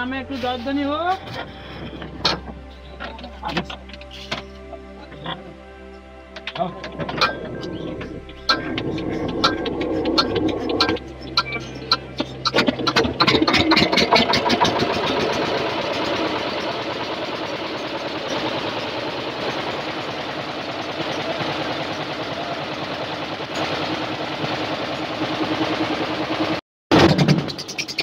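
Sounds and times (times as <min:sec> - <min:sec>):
diesel engine starting and running: 0:00.0 - 0:28.0.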